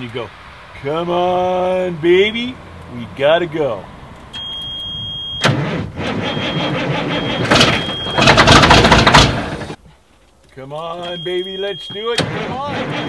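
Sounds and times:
diesel engine starter cranking: 0:02.2 - 0:09.8, 0:11.1 - 0:13.0.

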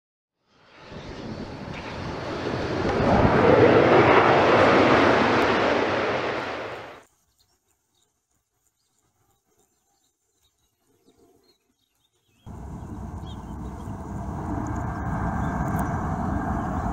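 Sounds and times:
jet engines rumbling: 0:00.5 - 0:07.0, 0:12.5 - 0:16.9.

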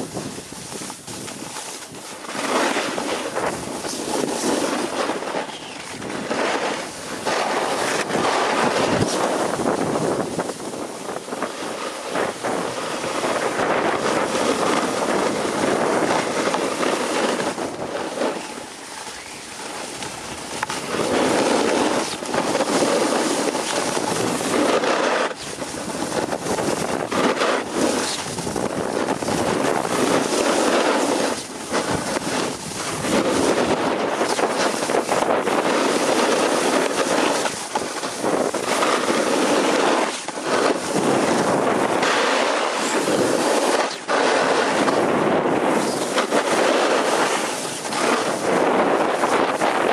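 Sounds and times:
ski edges scraping snow: 0:00.0 - 0:49.9
wind buffeting microphone: 0:00.0 - 0:49.9.

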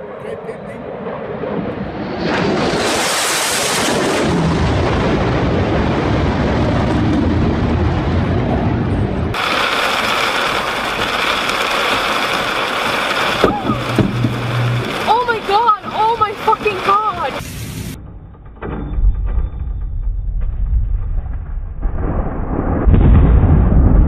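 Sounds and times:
fighter jet roar: 0:00.0 - 0:18.0
steady rushing noise with ringing: 0:08.5 - 0:18.2.

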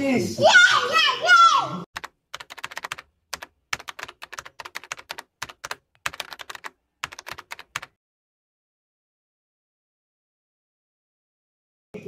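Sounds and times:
sharp rapid clicks: 0:02.0 - 0:08.0.

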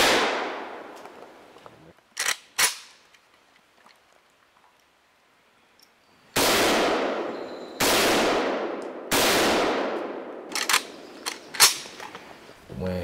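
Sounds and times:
rifle shots with echo: 0:00.0 - 0:00.9, 0:06.4 - 0:11.8.

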